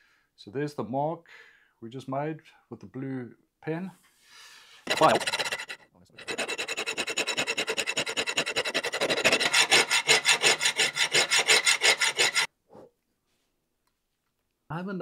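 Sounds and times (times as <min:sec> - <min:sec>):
hand file rasping on metal: 0:04.9 - 0:12.5.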